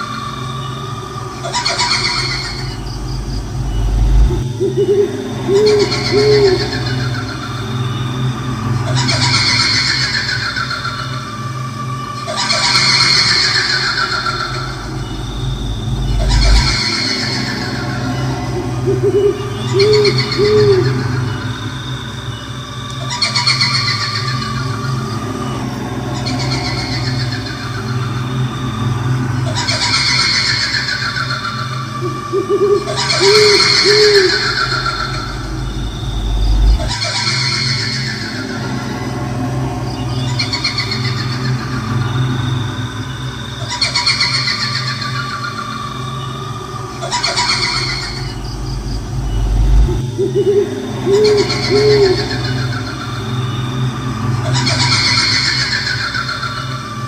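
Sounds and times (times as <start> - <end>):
owl hooting: 0.0 - 57.0
shrill quavering ghost wail: 0.0 - 57.0
steady low drone: 0.0 - 57.0
low rumble: 0.7 - 9.4, 13.9 - 22.9, 31.6 - 43.8, 46.3 - 55.3.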